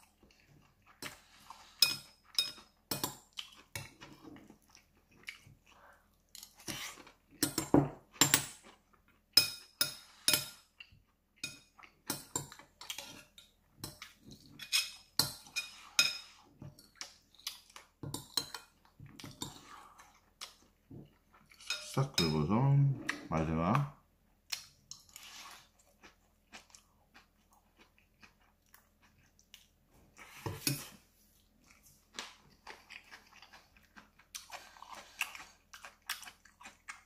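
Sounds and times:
metal spoon scraping ceramic bowl: 14.5 - 16.4, 21.6 - 22.4.

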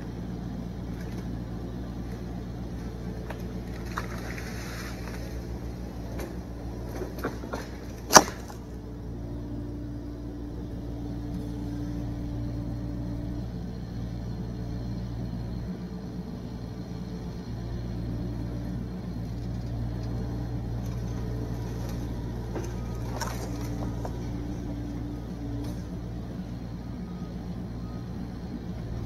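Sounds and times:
excavator diesel engine running: 0.0 - 29.0
short sharp cracks: 7.4 - 8.6.

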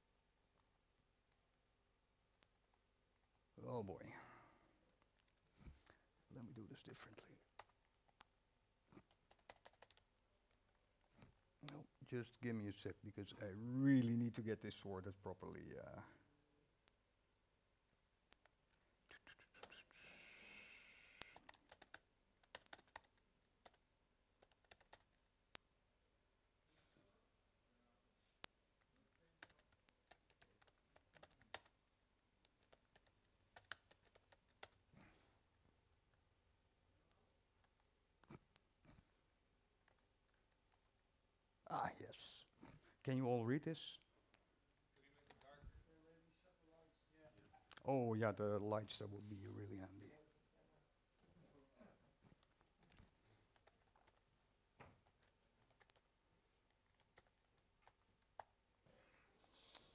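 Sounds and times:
typing on laptop keyboard: 7.5 - 11.3, 19.2 - 25.3, 28.8 - 34.9, 44.7 - 45.5, 52.3 - 58.8.

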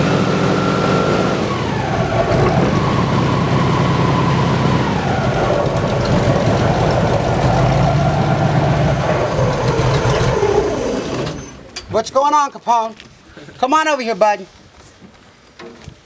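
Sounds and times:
engine idling: 0.0 - 11.8.

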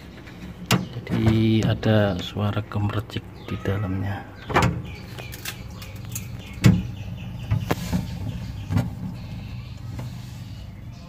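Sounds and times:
refrigerant trickling: 0.0 - 11.0
refrigerator compressor hum: 0.0 - 11.0.

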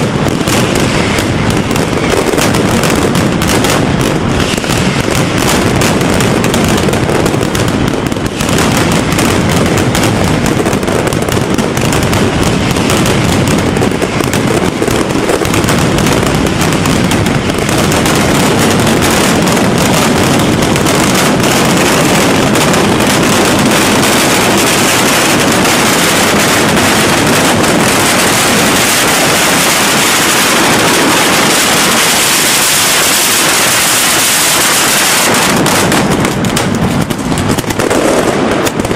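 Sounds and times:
firecrackers barrage: 0.0 - 38.9.

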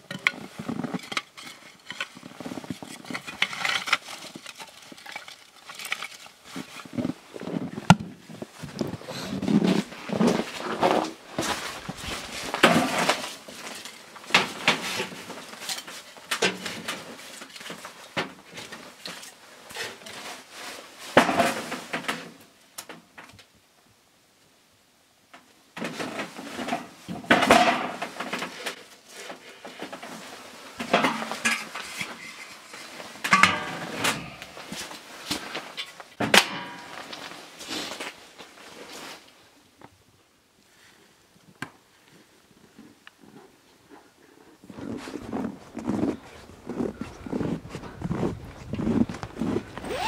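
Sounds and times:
metal stove lid clanking: 33.3 - 34.2.

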